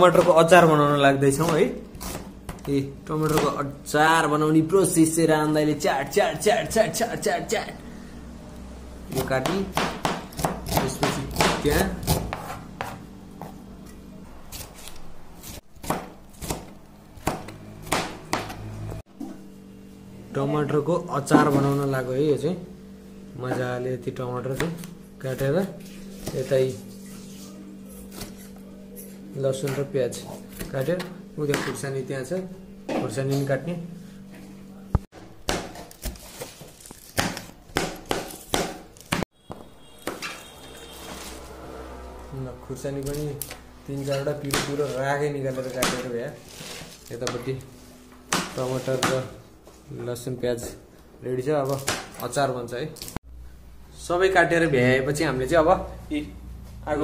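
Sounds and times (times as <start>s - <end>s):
knife chopping on plastic board: 9.1s - 13.5s, 15.8s - 18.6s, 35.2s - 36.2s, 37.2s - 40.2s, 44.4s - 44.8s, 48.3s - 49.3s.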